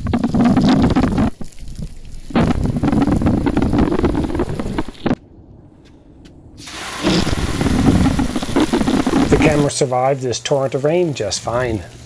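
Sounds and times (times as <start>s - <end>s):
hose water spraying on camera: 0.0s - 5.2s, 6.6s - 12.0s.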